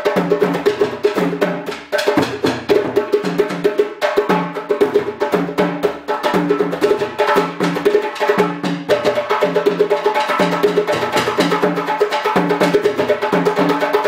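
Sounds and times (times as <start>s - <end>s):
hand drums playing fast rhythm: 0.0s - 14.0s.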